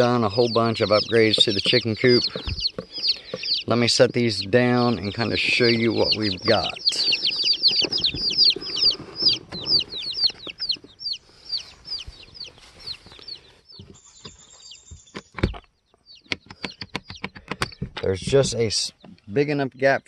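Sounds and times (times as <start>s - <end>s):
chicks peeping: 0.0s - 20.0s
sharp clicks: 15.1s - 18.1s.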